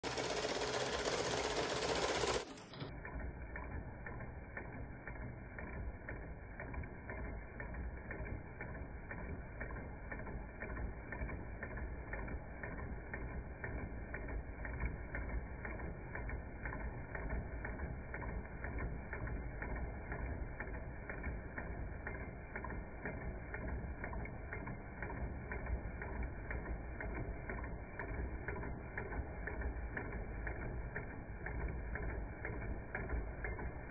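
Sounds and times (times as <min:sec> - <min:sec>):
rapid mechanical ticks and knocks: 0:00.0 - 0:33.9.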